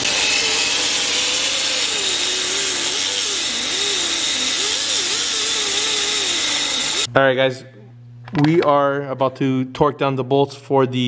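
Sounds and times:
air die grinder whining: 0:00.0 - 0:07.1.

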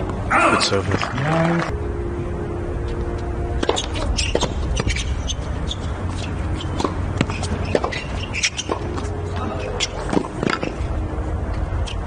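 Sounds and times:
racket hitting tennis ball: 0:03.6 - 0:10.8
shoes scuffing on court: 0:03.6 - 0:10.8.

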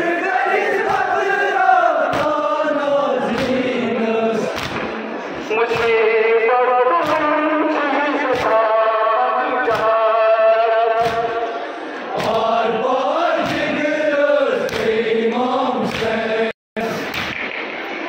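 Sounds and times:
men chanting in unison: 0:00.0 - 0:04.6, 0:05.4 - 0:16.6
palms slapping chests: 0:00.8 - 0:01.1, 0:02.0 - 0:02.5, 0:03.3 - 0:03.8, 0:04.5 - 0:05.0, 0:05.6 - 0:06.2, 0:06.8 - 0:08.8, 0:09.6 - 0:10.2, 0:10.8 - 0:12.6, 0:13.3 - 0:13.8, 0:14.6 - 0:15.0, 0:15.8 - 0:16.2, 0:17.0 - 0:17.7.

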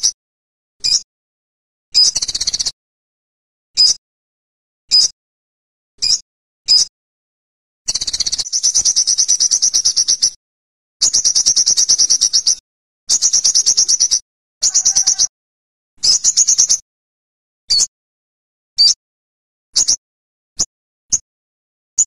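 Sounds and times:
bird chips and trills: 0:00.8 - 0:01.0, 0:01.9 - 0:02.8, 0:07.9 - 0:10.4, 0:11.0 - 0:15.3, 0:16.0 - 0:16.8.

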